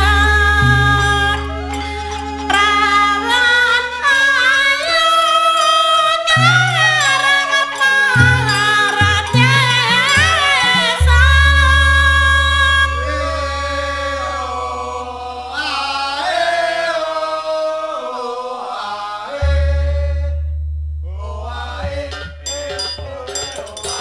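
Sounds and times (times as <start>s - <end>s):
ornamented vocal line: 0.0s - 24.0s.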